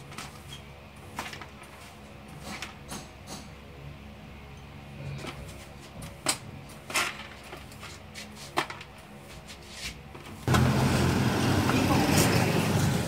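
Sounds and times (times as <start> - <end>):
broom sweeping concrete floor: 0.0 - 2.8, 5.3 - 13.0.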